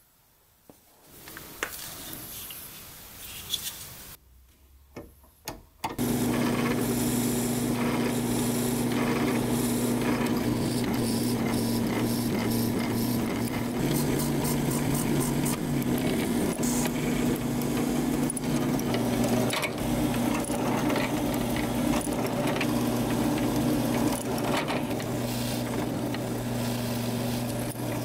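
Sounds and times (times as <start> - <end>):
drill press drilling steel: 6.0 - 28.0.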